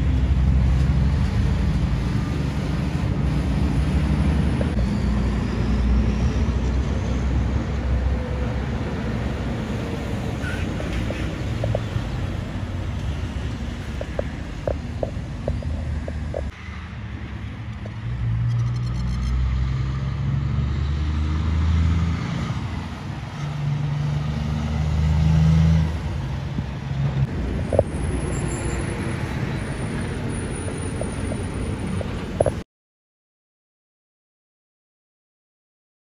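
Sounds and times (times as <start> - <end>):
diesel trucks driving past: 0.0 - 32.6.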